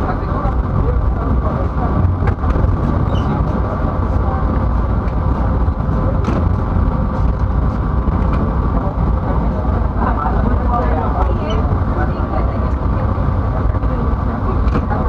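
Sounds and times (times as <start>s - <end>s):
train carriage rumbling on rails: 0.0s - 15.0s.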